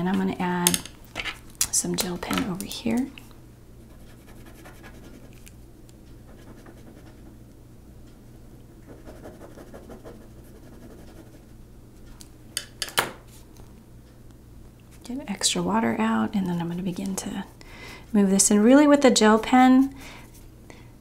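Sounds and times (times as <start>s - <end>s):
faint steady hum: 0.0s - 21.0s
gel pen scratching on paper: 3.9s - 5.4s, 6.3s - 7.3s, 8.9s - 11.5s.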